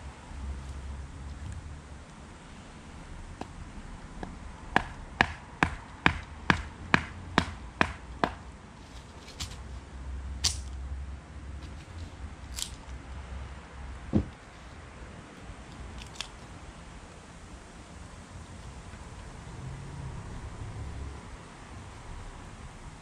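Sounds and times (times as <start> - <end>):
dull thud: 14.1 - 14.4.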